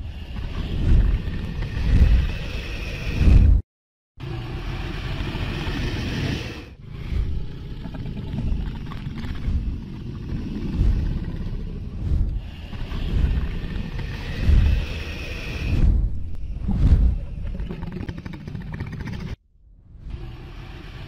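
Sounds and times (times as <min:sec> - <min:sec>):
rumbling rush of wind: 0:00.0 - 0:03.6, 0:08.3 - 0:17.8
wingbeat whooshes: 0:09.3 - 0:18.0.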